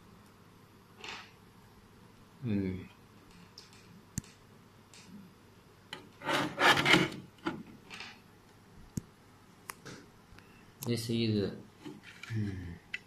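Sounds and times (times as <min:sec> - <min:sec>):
plastic casing scraping on desk: 0:06.2 - 0:07.3.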